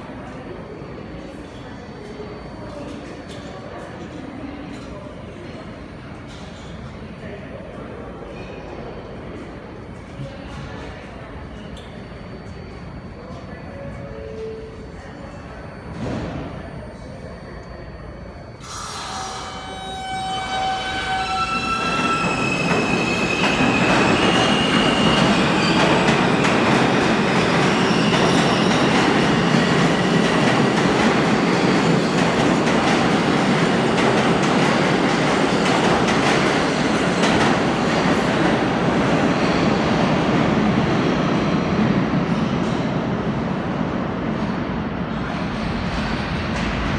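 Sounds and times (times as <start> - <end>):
train wheels rumbling on rail: 20.7 - 46.9.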